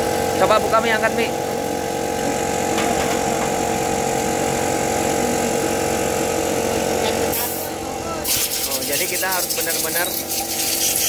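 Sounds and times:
engine humming: 0:00.0 - 0:08.2.

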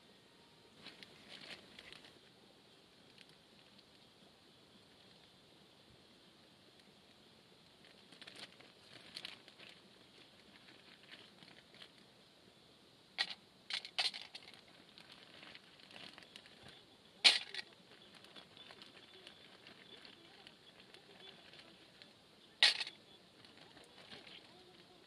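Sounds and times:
packaging crinkling and clicking: 0:13.2 - 0:24.9.

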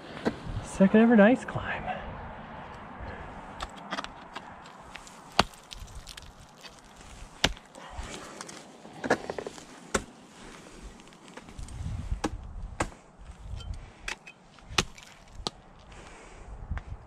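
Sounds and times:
light crunching and ticking: 0:03.6 - 0:08.7, 0:10.4 - 0:11.9, 0:14.2 - 0:15.9
ice tool striking ice: 0:04.9 - 0:07.8, 0:14.1 - 0:15.6.

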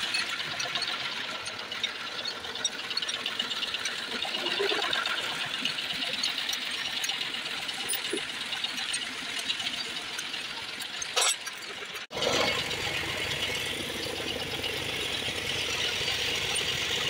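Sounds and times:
spanners clinking on metal: 0:00.0 - 0:12.1
fast mechanical rattling: 0:00.0 - 0:17.0.

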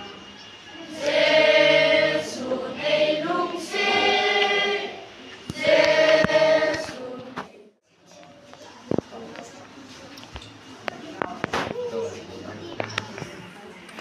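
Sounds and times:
children's choir singing: 0:00.0 - 0:07.5.

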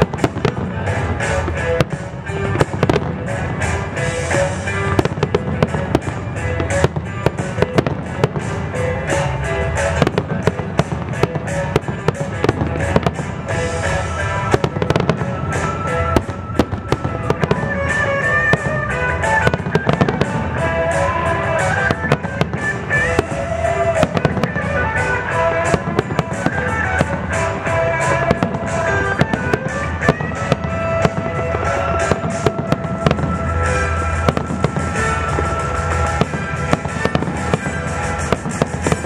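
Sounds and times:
fireworks bursting: 0:00.0 - 0:39.0
music from loudspeakers: 0:00.0 - 0:39.0.

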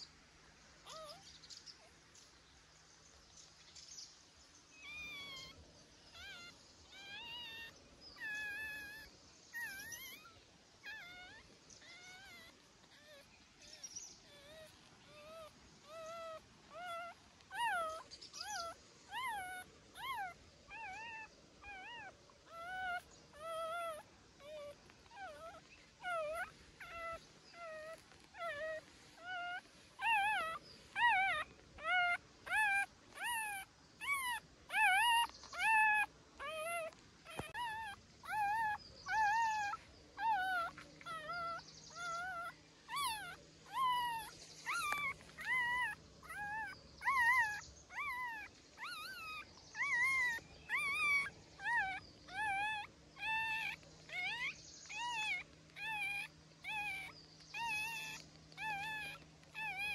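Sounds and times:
puppy whimpering and crying: 0:00.8 - 0:01.3, 0:04.7 - 0:59.9.

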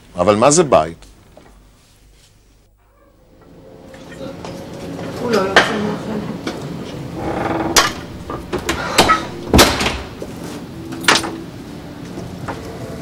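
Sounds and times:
wooden door and latch knocking: 0:07.2 - 0:10.3.

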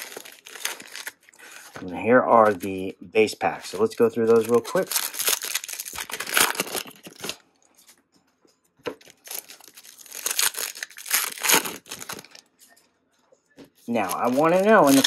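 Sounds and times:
foil wrappers tearing and crinkling: 0:00.0 - 0:01.7, 0:04.0 - 0:07.4, 0:09.0 - 0:12.4, 0:13.9 - 0:15.0.

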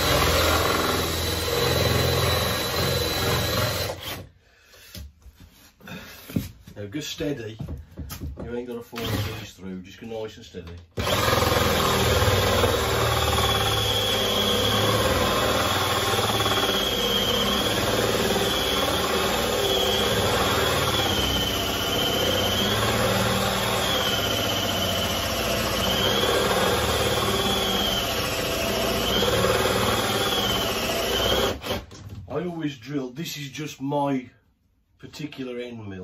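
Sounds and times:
cordless drill boring into wood: 0:00.0 - 0:04.3, 0:09.0 - 0:09.5, 0:11.0 - 0:32.0.

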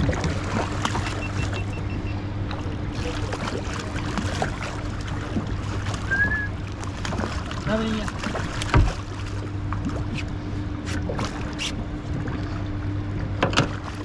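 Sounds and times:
boat motor humming: 0:00.0 - 0:14.0
short high whistle: 0:06.1 - 0:06.5.

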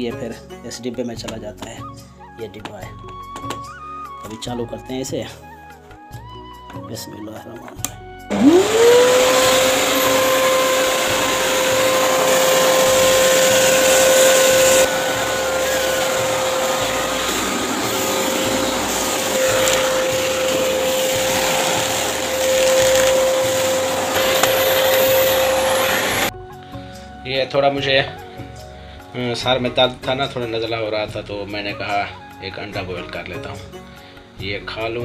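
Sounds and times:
vacuum cleaner motor whine: 0:08.3 - 0:26.3
vacuum nozzle suction on carpet: 0:08.3 - 0:26.3.

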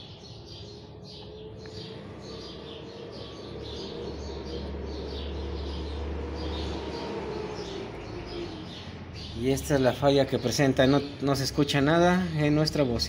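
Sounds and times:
low hum: 0:00.0 - 0:09.1
small birds chirping: 0:00.0 - 0:13.0.

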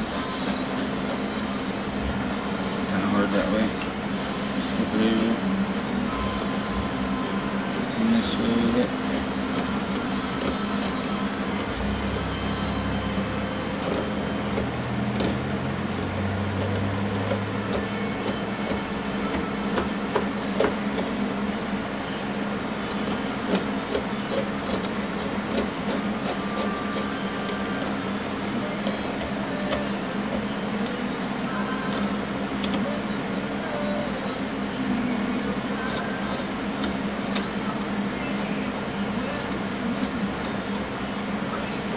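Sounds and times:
electric fan humming: 0:00.0 - 0:41.9
knife shaving wood: 0:00.1 - 0:02.0, 0:07.1 - 0:21.2, 0:22.8 - 0:31.0, 0:35.3 - 0:37.6.

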